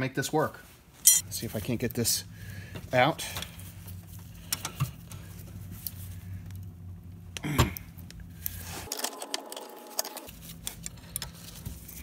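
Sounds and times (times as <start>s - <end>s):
metal parts clicking and clinking: 1.0s - 1.2s.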